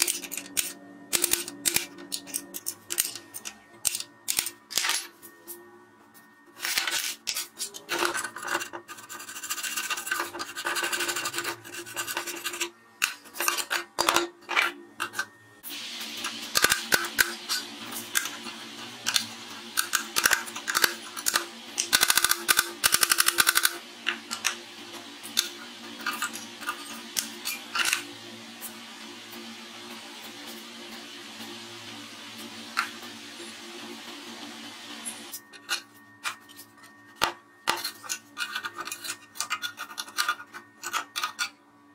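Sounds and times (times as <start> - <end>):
metal tool scraping on steel: 37.7 - 41.6.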